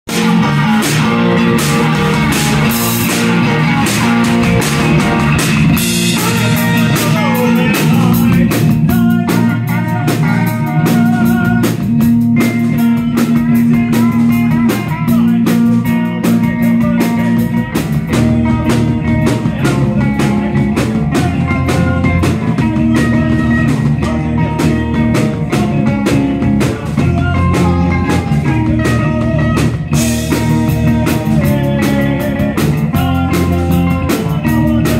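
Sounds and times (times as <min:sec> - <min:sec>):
drum and cymbal hits: 0:00.1 - 0:34.9
live rock band playing: 0:00.1 - 0:34.9.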